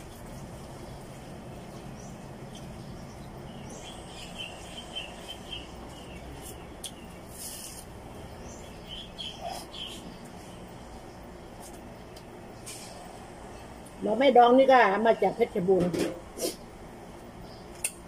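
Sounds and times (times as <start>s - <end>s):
steady low hum: 0.0s - 18.0s
high bird-like chirps: 8.5s - 10.4s.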